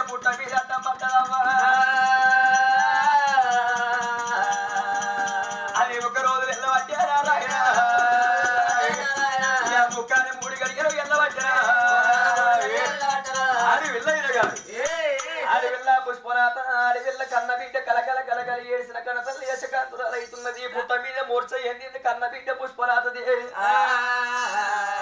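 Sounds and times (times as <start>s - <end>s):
hand drum: 0.0s - 14.9s
person singing long sliding notes: 1.3s - 5.9s, 23.6s - 25.0s
continuous jingling rattle: 2.5s - 15.3s.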